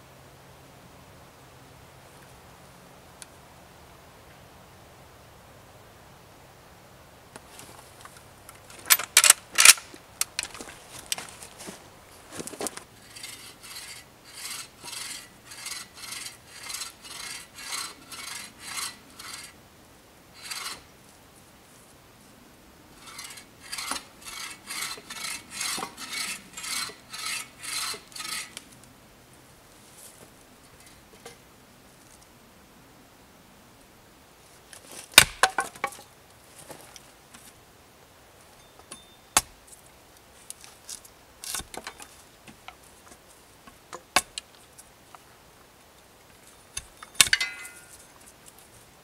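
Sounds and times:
bow saw rasping through wood: 13.0s - 19.6s, 20.4s - 20.9s, 23.0s - 28.6s.

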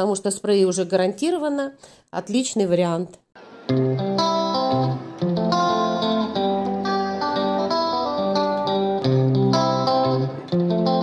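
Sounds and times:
instrumental guitar tune: 3.4s - 11.0s.

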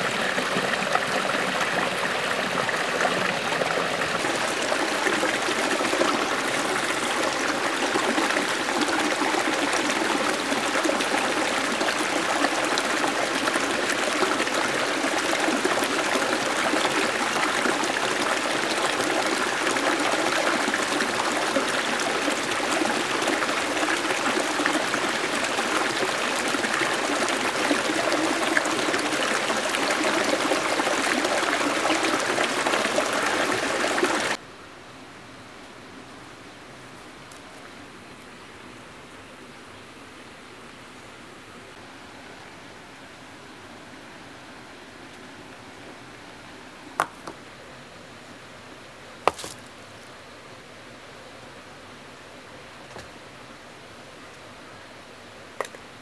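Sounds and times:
stream trickling over rocks: 0.0s - 34.4s, 47.0s - 47.4s, 49.2s - 50.1s.

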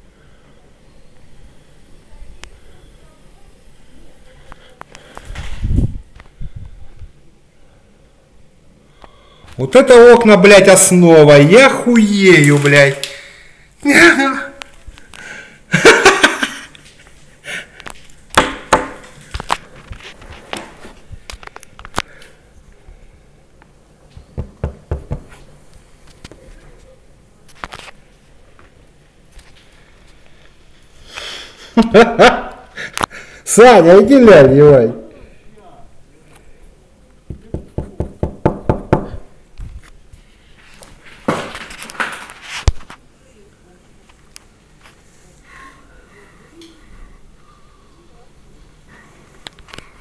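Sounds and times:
finger knocking on glass: 24.4s - 25.3s, 37.3s - 39.2s.

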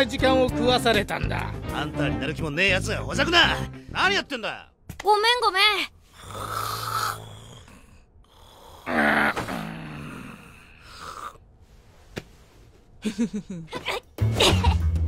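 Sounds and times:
man snoring: 6.1s - 11.4s.

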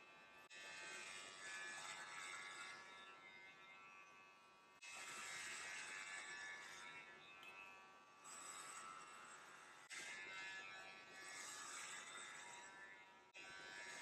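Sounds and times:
electric hair clippers buzzing: 4.9s - 8.0s.

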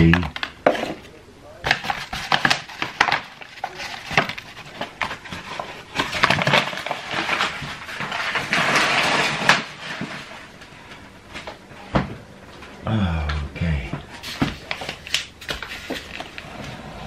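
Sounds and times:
paper bag rustling and crinkling: 1.7s - 11.6s, 14.1s - 17.0s.

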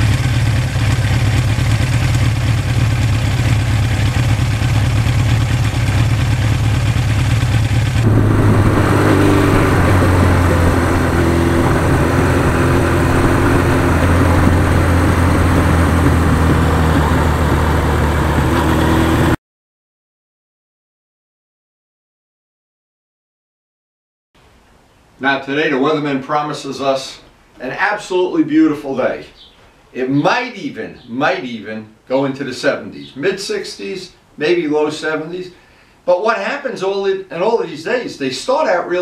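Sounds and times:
motorcycle engine running: 0.0s - 19.4s.

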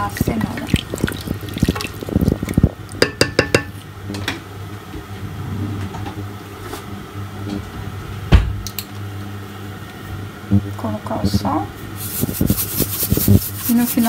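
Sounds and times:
steady low hum: 0.0s - 14.0s
loud thump: 8.3s - 8.6s.

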